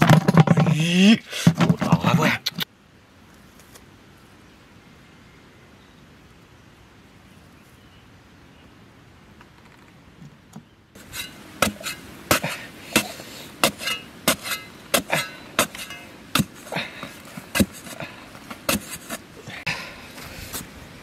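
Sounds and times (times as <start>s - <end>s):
spade chopping into dry soil: 11.0s - 19.2s.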